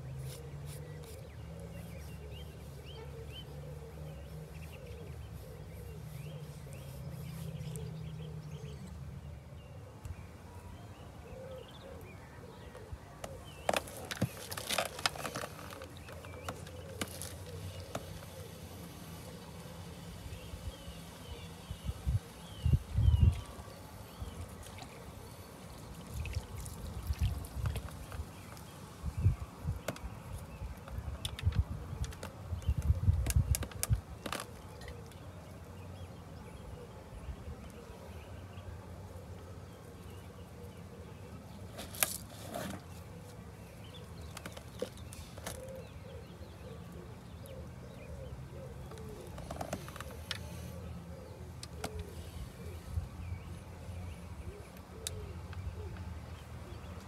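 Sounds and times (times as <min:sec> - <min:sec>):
birds calling faintly: 0:00.0 - 0:57.0
wind buffeting microphone: 0:21.8 - 0:23.6.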